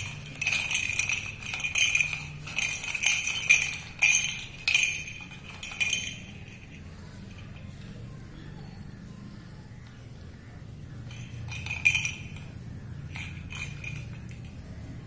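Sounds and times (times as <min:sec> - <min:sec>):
toy ball bell jingling: 0:00.0 - 0:07.7, 0:11.0 - 0:15.0.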